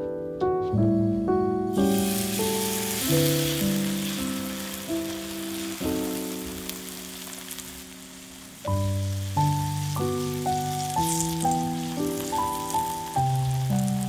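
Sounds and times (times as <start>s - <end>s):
soft piano music: 0.0s - 14.0s
batter sizzling in hot oil: 1.7s - 14.0s.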